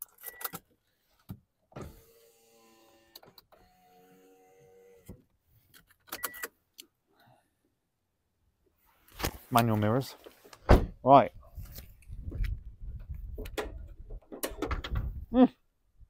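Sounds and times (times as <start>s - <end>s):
electric window motor running: 1.8s - 5.1s.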